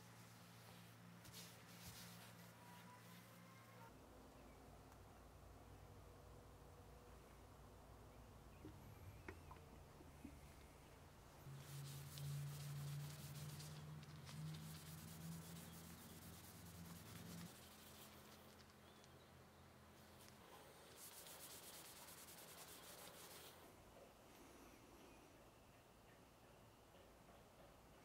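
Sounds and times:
faint low hum: 0:00.0 - 0:28.0
sandpaper rubbing on wood: 0:11.5 - 0:18.3, 0:20.9 - 0:23.6.

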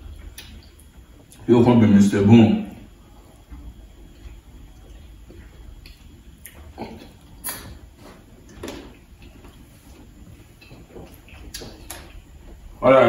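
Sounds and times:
person chewing and smacking lips: 0:00.2 - 0:01.4, 0:03.4 - 0:12.8
wet mouth sounds: 0:05.8 - 0:09.4.

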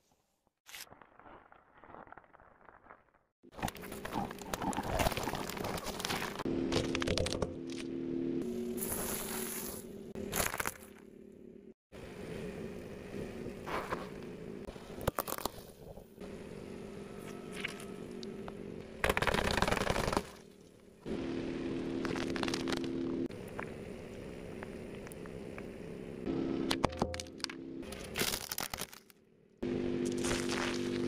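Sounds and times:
steady low hum: 0:06.1 - 0:15.2, 0:15.9 - 0:19.1, 0:20.4 - 0:28.2, 0:29.2 - 0:31.0.

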